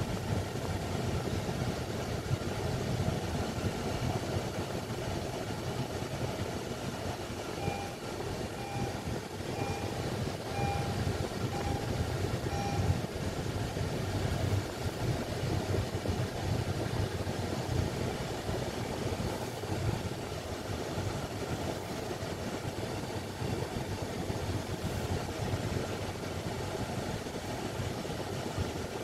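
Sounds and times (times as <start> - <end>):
car road and engine noise: 0.0 - 29.0
short electronic beeps: 7.6 - 8.0, 8.6 - 13.0.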